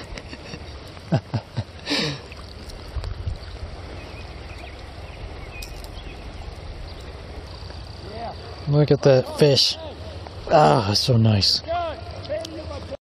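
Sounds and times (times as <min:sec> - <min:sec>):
river water: 0:00.0 - 0:13.0
wind rumble on microphone: 0:02.4 - 0:08.7.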